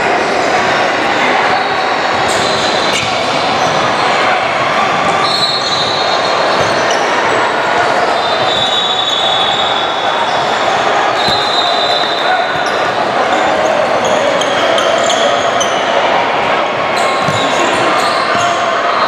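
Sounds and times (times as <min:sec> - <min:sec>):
echoing gym noise: 0:00.0 - 0:19.0
basketball bouncing on court: 0:11.2 - 0:11.7, 0:17.1 - 0:18.5.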